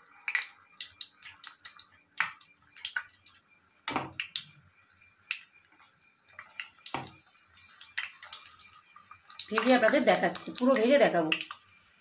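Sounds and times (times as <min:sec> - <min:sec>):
food deep-frying in oil: 0:00.0 - 0:12.0
knock in pan: 0:03.9 - 0:04.2.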